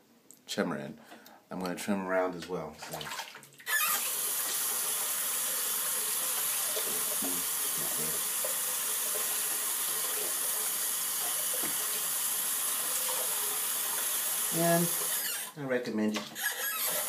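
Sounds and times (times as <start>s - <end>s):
water running from tap: 2.8s - 15.6s, 16.4s - 17.0s.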